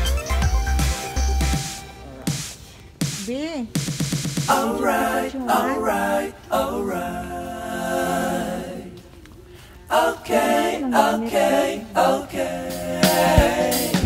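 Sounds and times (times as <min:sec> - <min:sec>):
unaccompanied vocal singing: 0:04.5 - 0:14.0.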